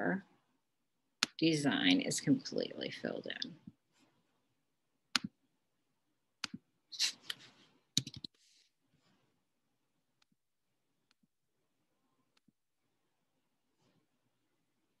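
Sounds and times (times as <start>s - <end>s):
sharp computer clicks: 8.0s - 8.3s.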